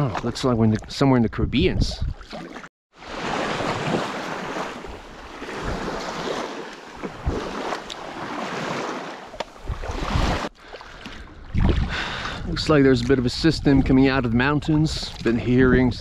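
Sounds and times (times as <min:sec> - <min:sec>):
wind buffeting microphone: 0:07.0 - 0:07.7, 0:09.6 - 0:10.5, 0:11.4 - 0:16.0.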